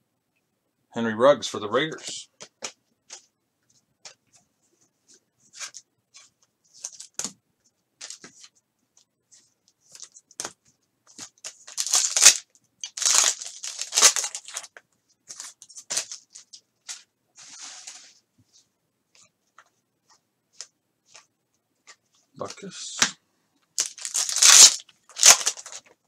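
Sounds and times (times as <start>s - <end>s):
cards rustling and tapping: 2.0s - 3.3s, 5.1s - 7.4s, 8.0s - 17.1s, 20.5s - 23.1s
foil wrapper tearing and crinkling: 11.4s - 14.7s, 23.8s - 25.9s.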